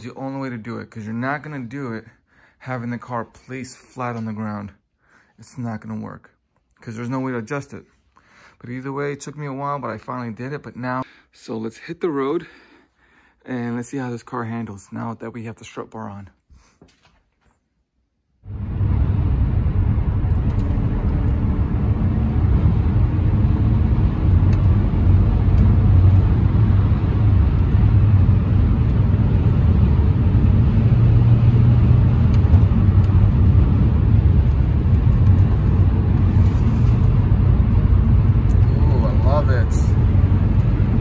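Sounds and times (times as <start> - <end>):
car cabin road and engine noise: 18.5 - 41.0.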